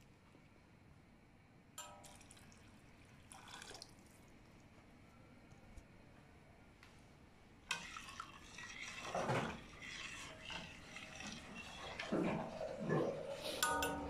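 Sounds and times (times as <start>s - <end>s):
metal spoon scraping pot: 7.7s - 14.0s
bubbling water: 7.8s - 14.0s.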